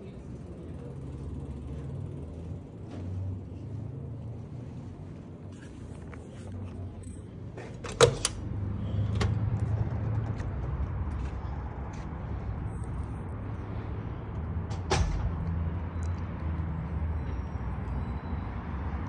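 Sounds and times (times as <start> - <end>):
low rumble of open air: 0.0 - 18.4
door push bar clacking: 7.8 - 8.4.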